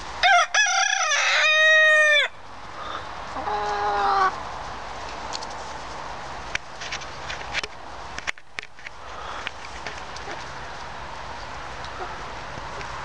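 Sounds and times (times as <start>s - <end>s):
hens squawking: 2.8s - 4.4s.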